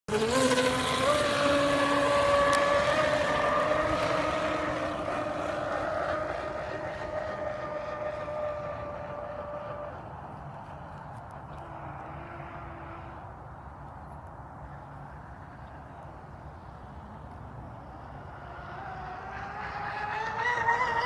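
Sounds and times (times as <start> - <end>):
electric motors whining: 0.1 - 10.5.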